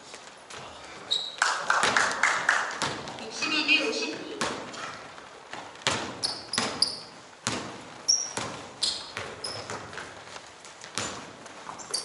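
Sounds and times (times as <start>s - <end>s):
sneaker squeaks: 1.0s - 1.4s, 4.4s - 12.0s
basketball bouncing: 2.7s - 3.2s, 4.4s - 12.0s.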